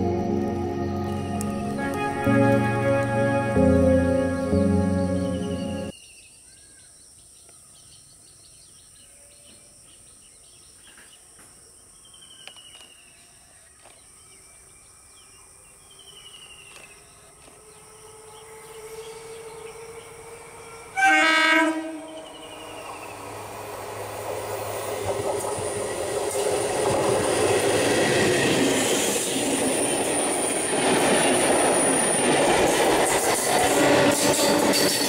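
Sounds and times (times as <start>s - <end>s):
electric train hum: 0.0s - 5.9s, 17.1s - 35.0s
train horn: 0.0s - 5.9s, 17.5s - 23.2s.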